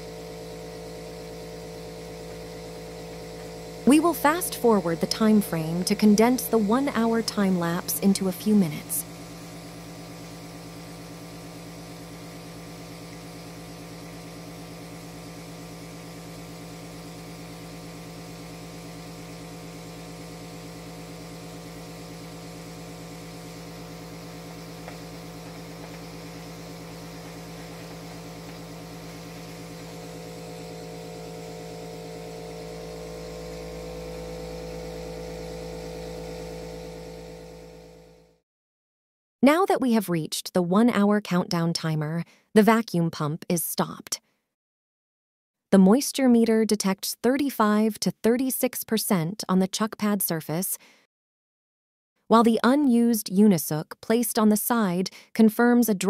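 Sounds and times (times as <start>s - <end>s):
electric vacuum pump humming: 0.0s - 38.4s.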